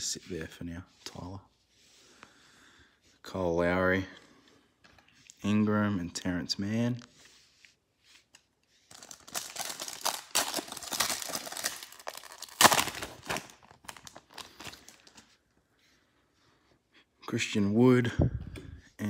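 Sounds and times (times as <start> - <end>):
cards rustling: 6.6 - 15.4
foil wrapper crinkling and tearing: 8.9 - 15.2.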